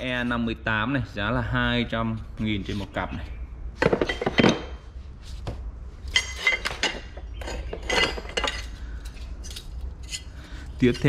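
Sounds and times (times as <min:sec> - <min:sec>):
metal brackets clinking: 0:06.0 - 0:11.0.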